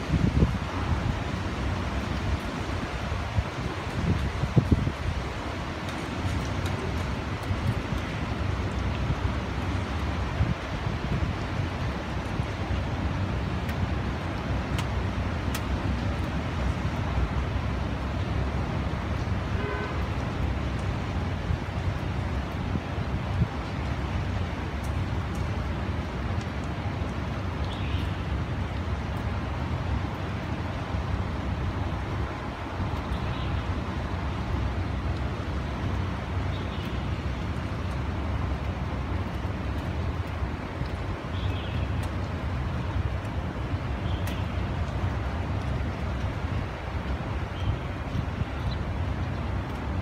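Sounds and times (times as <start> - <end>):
strong wind roaring: 0.0 - 12.5
wind buffeting microphone: 0.0 - 13.0
wind rumble on microphone: 0.0 - 50.0
horn-like tone: 19.6 - 20.0.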